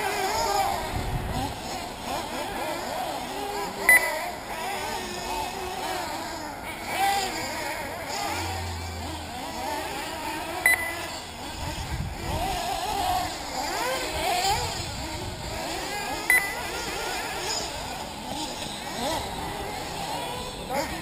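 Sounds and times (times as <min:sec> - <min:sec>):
rc car engines revving: 0:00.0 - 0:21.0
short high beeps: 0:03.9 - 0:04.1, 0:10.6 - 0:11.0, 0:16.3 - 0:16.6.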